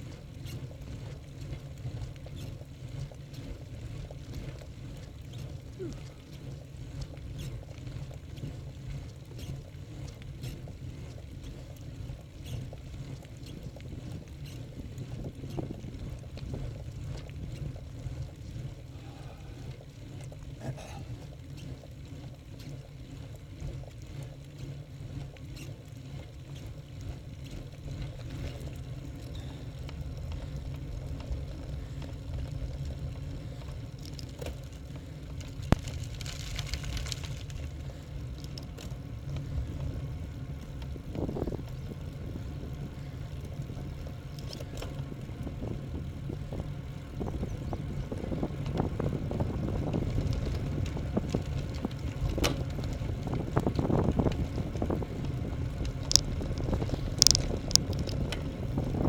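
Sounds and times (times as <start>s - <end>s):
bicycle tyres on asphalt: 0.0s - 59.0s
wind buffeting microphone: 1.9s - 21.1s, 27.6s - 59.0s
faint clicks: 28.1s - 39.5s, 55.8s - 58.6s.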